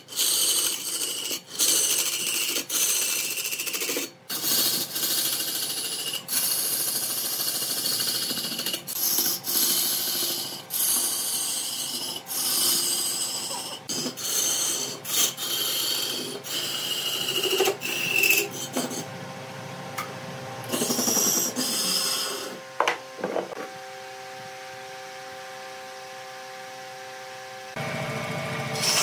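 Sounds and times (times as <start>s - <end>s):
tool rasping spinning wood: 0.0s - 19.1s, 20.6s - 22.6s, 28.7s - 29.0s.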